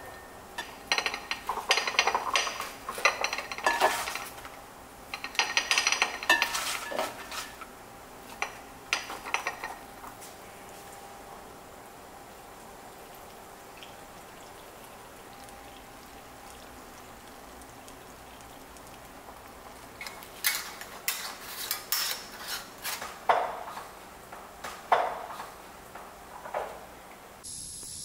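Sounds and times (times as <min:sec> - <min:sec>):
glass jars and metal lids clinking: 0:00.0 - 0:04.5, 0:05.1 - 0:07.6.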